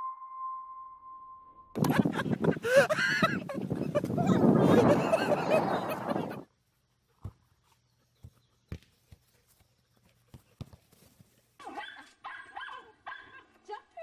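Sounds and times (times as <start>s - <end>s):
wind and surf: 1.8s - 6.4s.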